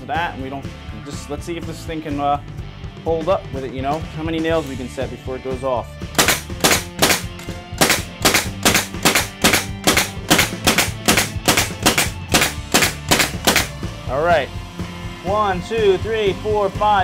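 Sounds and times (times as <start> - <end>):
pneumatic nailer shots into wood: 6.2 - 13.8.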